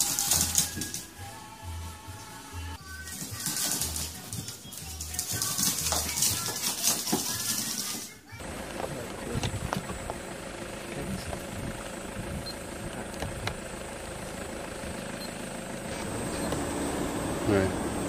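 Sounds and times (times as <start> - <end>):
vehicle engine idling: 8.3 - 18.0.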